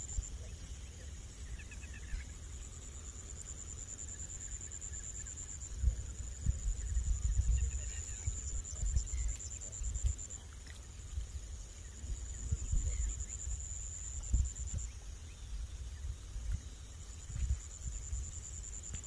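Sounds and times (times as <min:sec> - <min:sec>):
wind rumbling on microphone: 0:05.2 - 0:19.0.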